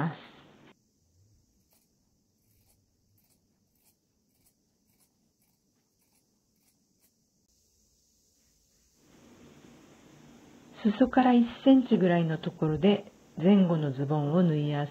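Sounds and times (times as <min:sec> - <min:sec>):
shears snipping fabric: 0:01.6 - 0:07.2.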